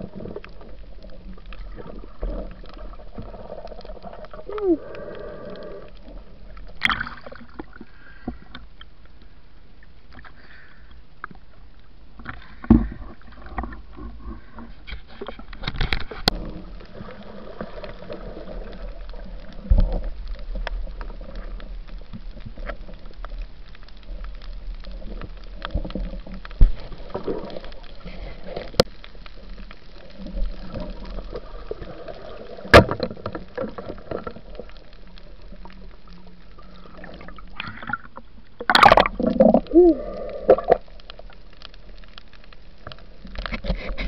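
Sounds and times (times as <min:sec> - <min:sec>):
muffled underwater gurgling: 0:00.0 - 0:08.3, 0:24.0 - 0:41.4.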